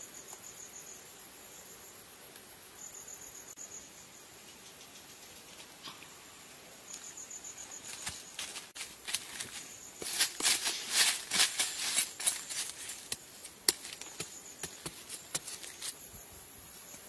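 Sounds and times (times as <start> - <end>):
insects chirring: 0.0 - 17.0
knife hacking into dry soil: 10.0 - 16.0.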